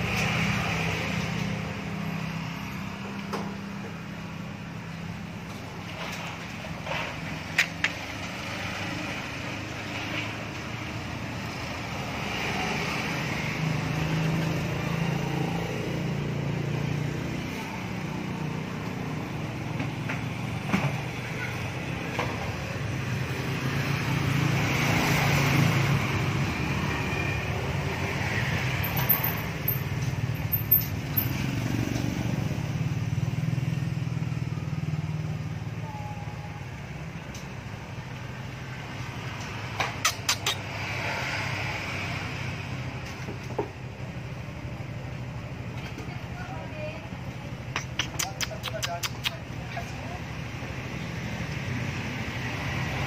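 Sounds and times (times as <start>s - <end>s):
motor traffic passing: 0.0s - 53.0s
sharp clicks: 47.7s - 49.5s.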